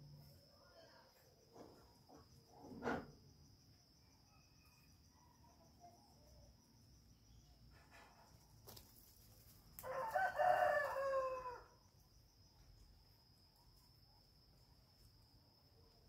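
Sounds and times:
insect trill: 0.0s - 16.0s
rooster crowing: 9.8s - 11.9s.

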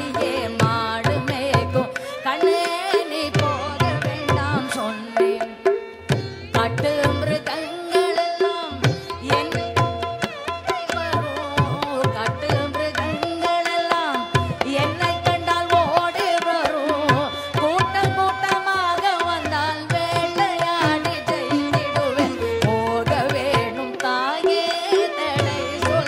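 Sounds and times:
hand drums: 0.0s - 26.0s
violin: 0.0s - 26.0s
woman singing: 0.0s - 26.0s.

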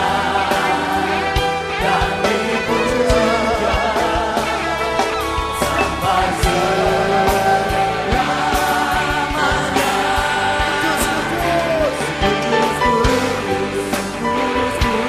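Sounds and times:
band playing: 0.0s - 15.0s
congregation singing: 0.0s - 15.0s
man singing lead vocals: 0.0s - 15.0s.

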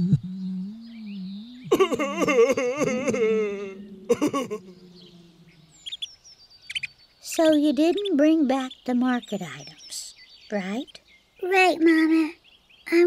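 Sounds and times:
cartoon wolf whimpering and wailing: 1.7s - 5.7s.

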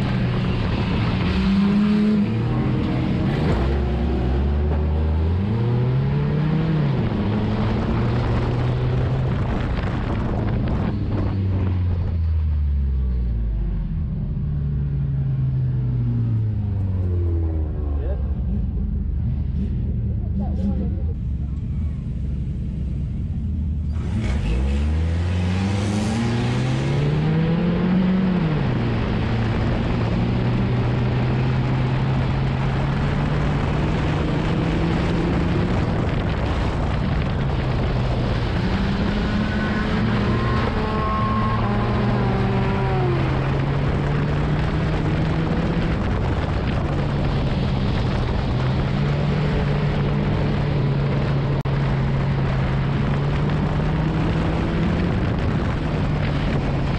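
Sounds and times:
race car engine revving: 0.0s - 11.8s, 15.4s - 56.9s.

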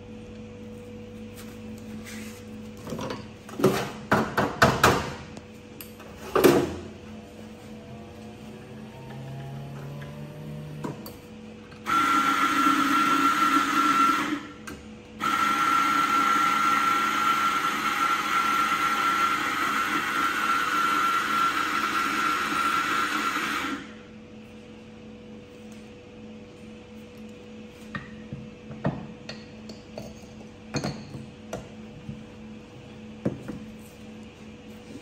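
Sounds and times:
coffee grinder motor grinding: 11.9s - 14.4s, 15.2s - 23.9s.

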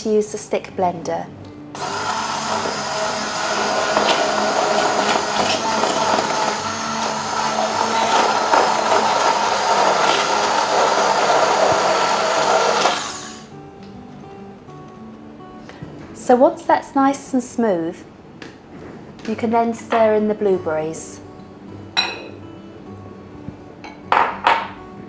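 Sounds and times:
stick blender motor running: 1.8s - 13.5s.

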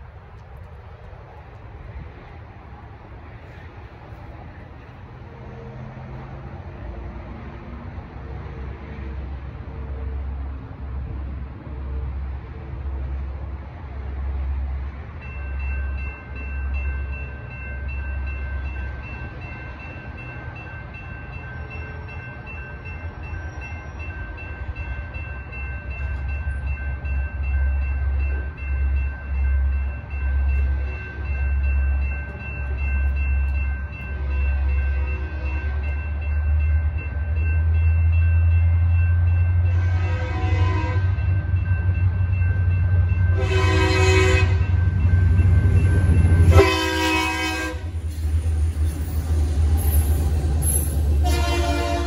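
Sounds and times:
railroad crossing bell ringing: 14.7s - 52.0s
locomotive horn: 39.6s - 41.2s, 43.3s - 44.8s, 46.4s - 48.0s, 50.7s - 52.0s.

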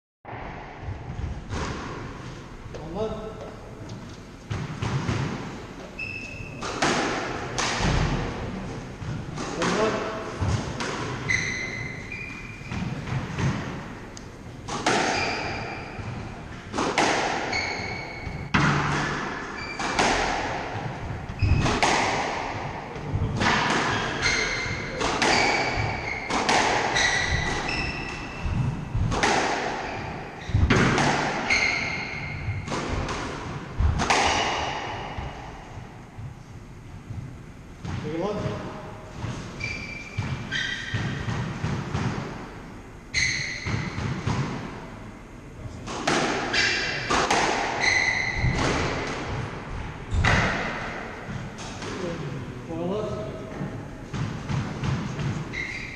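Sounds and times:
squash ball hits echoing: 0.3s - 3.2s, 4.5s - 36.4s, 37.0s - 42.5s, 43.2s - 44.8s, 45.8s - 52.2s, 53.2s - 55.9s
shoes squeaking on wooden floor: 11.2s - 13.0s, 17.5s - 18.5s, 23.9s - 28.9s, 47.8s - 48.6s.

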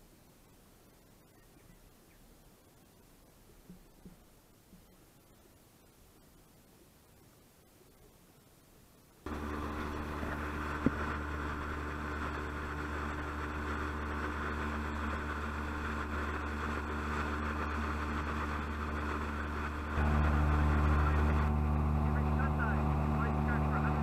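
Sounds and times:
speedboat engine running: 9.2s - 24.0s.

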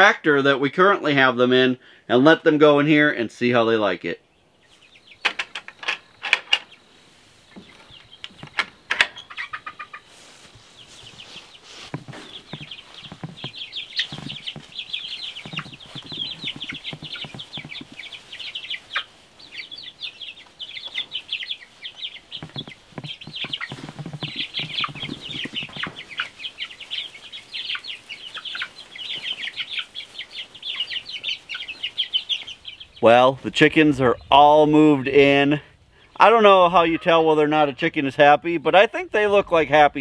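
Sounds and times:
chicks peeping: 0.0s - 40.0s
lower chicken calls: 6.7s - 33.1s.

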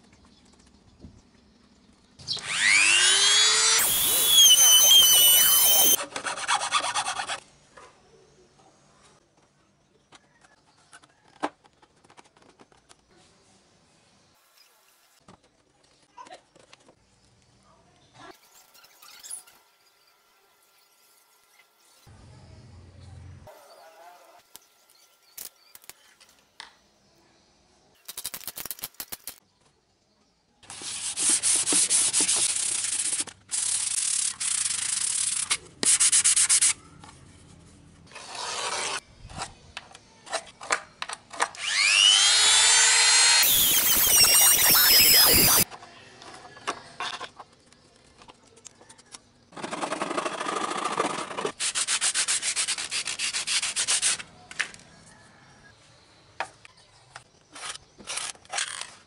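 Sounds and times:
whine curving in pitch: 2.4s - 6.0s, 41.8s - 45.6s
sandpaper rubbing on fiberglass: 3.8s - 7.4s, 30.7s - 36.8s, 51.5s - 54.3s.

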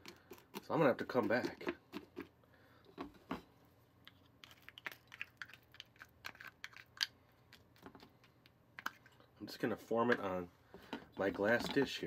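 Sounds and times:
utensil clicking in sticky mixture: 4.4s - 9.1s.

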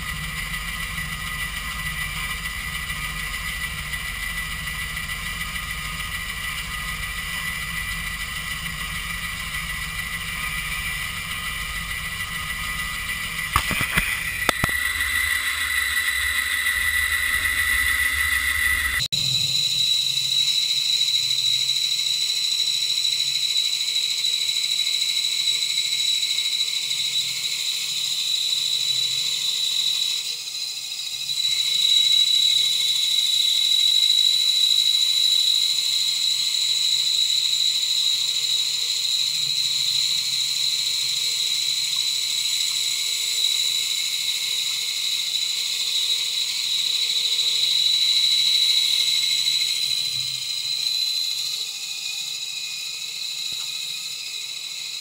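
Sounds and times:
bandsaw cutting wood: 1.1s - 19.1s.

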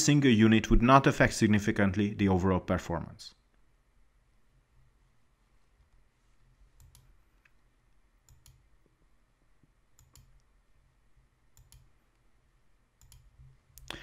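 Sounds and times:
soft clicks: 6.8s - 9.0s, 9.6s - 10.5s, 11.5s - 12.3s, 13.0s - 14.0s.

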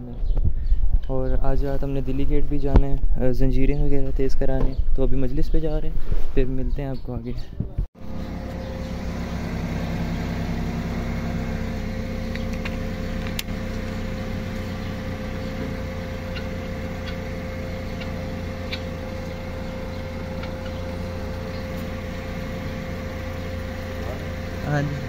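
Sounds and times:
steady machine hum: 8.0s - 25.0s.

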